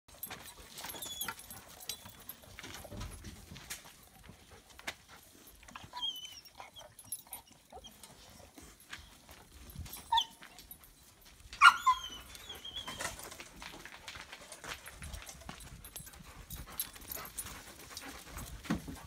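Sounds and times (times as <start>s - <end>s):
puppy whimpers: 5.7s - 8.0s, 11.6s - 13.2s.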